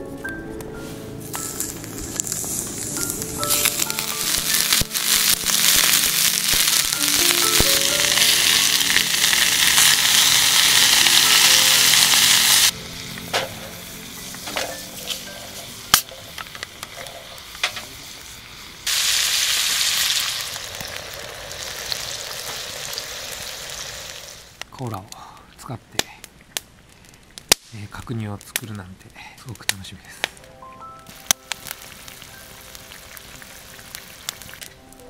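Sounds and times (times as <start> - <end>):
meat sizzling in a skillet: 1.3 - 24.6, 31.1 - 34.7.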